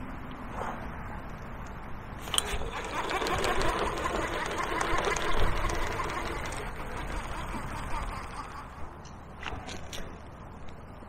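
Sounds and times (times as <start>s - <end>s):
sharp reel click: 2.2s - 7.4s
fishing reel whirring and clicking: 2.2s - 8.8s.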